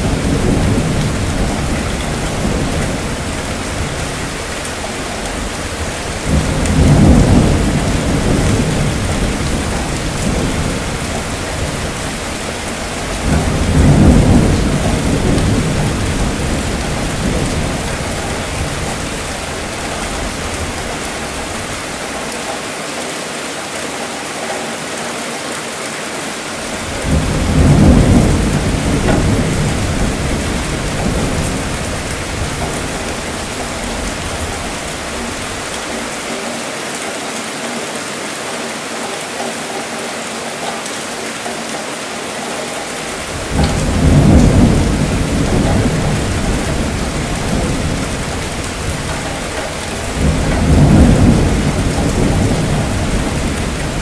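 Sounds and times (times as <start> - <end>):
thunder rumbling: 0.0 - 22.2, 26.6 - 36.2, 43.2 - 54.0
steady rain: 0.0 - 54.0.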